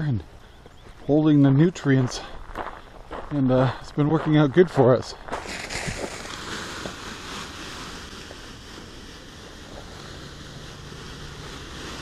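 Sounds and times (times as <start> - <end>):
granules pouring into a plastic tub: 5.4 - 7.8.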